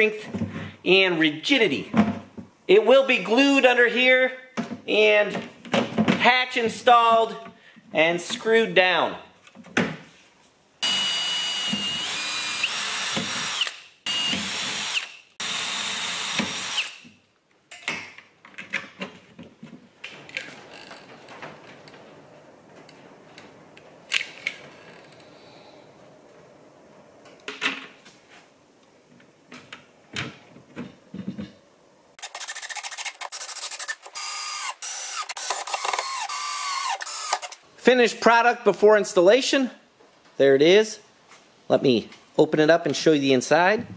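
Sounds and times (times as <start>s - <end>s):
power tool whining: 10.8s - 17.0s, 32.2s - 37.6s
cordless drill driving screws: 10.8s - 17.1s, 32.2s - 37.6s.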